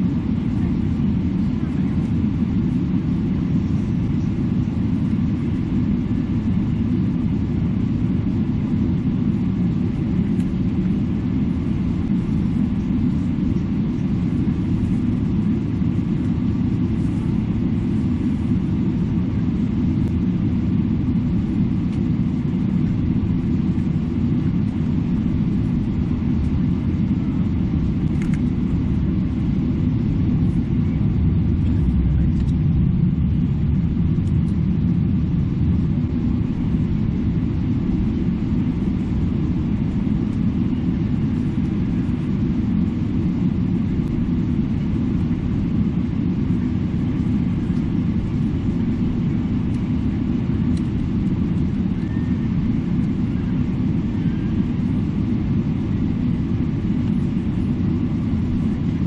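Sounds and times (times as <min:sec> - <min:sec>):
airliner cabin rumble: 0:00.0 - 0:59.0.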